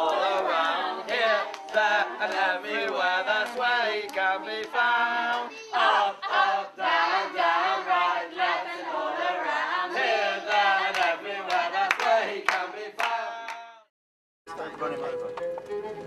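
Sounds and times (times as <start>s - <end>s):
hand claps: 0.0s - 5.5s, 10.8s - 13.7s
children and adults singing: 0.0s - 13.6s.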